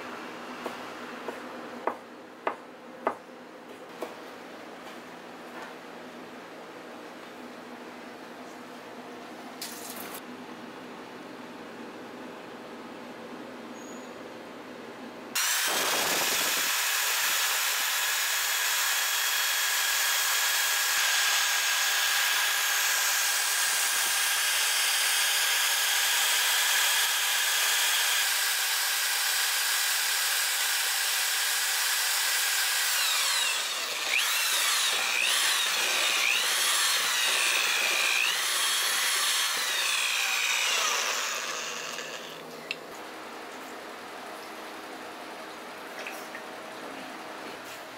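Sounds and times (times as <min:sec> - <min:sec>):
immersion blender motor whirring: 0:15.4 - 0:42.4.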